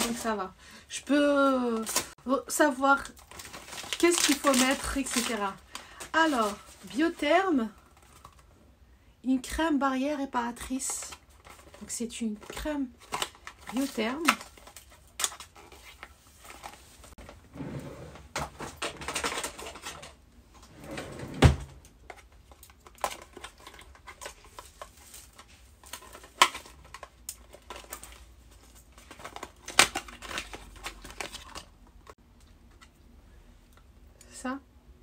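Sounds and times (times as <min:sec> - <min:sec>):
packaging rustling and crinkling: 0:01.4 - 0:02.2, 0:03.0 - 0:08.5, 0:11.0 - 0:17.4, 0:18.2 - 0:20.2, 0:21.9 - 0:32.2
packaging clicks and knocks: 0:18.4 - 0:20.2.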